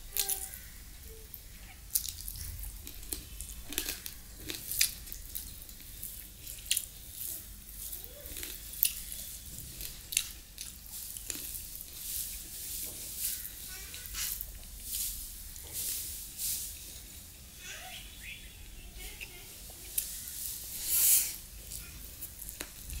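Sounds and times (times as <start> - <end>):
fingers squishing rice: 0.0 - 17.4, 19.0 - 23.0
chewing and lip-smacking: 1.9 - 7.5, 8.2 - 12.0.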